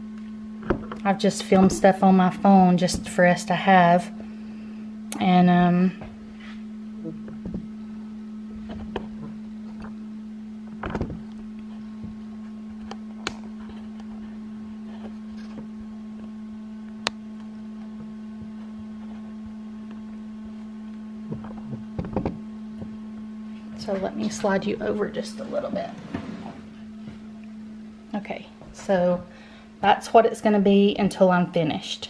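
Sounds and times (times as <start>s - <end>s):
small electric motor humming: 5.9s - 23.8s.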